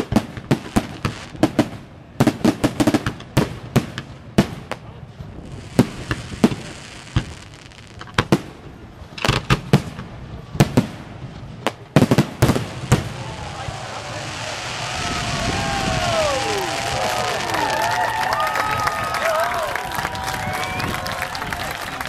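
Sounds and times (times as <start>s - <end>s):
steady firework hiss: 4.6s - 18.8s.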